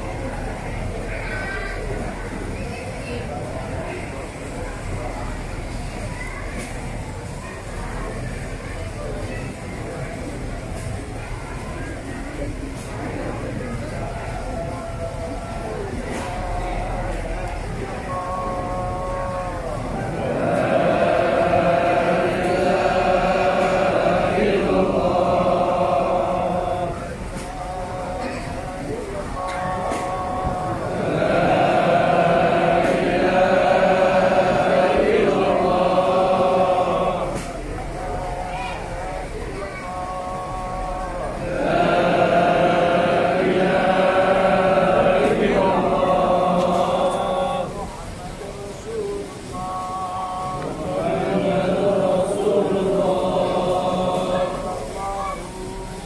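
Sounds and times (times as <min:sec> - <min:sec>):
congregation chanting in unison: 0:12.9 - 0:56.0.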